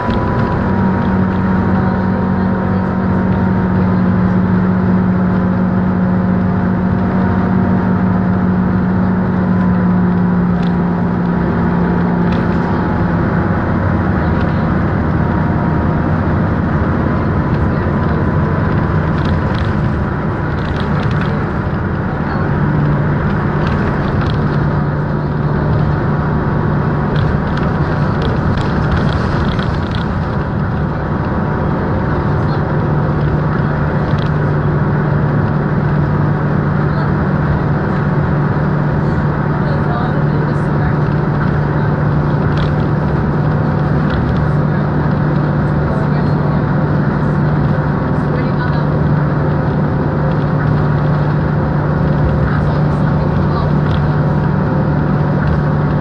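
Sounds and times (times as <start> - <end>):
bus engine drone: 0.0 - 56.0
road and tyre noise: 0.0 - 56.0
light rattles and clicks: 14.1 - 15.2, 16.6 - 26.3, 26.9 - 36.0, 39.2 - 56.0.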